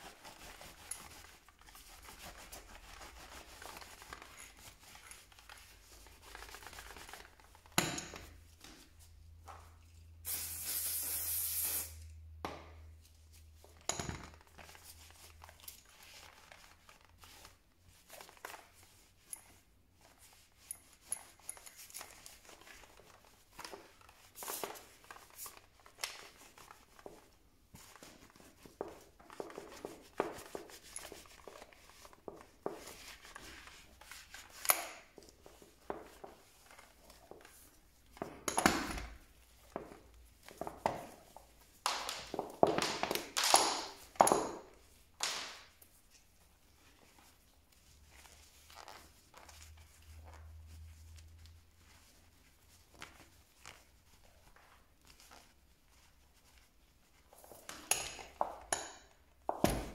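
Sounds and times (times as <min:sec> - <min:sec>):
spray hiss: 0:10.2 - 0:12.0.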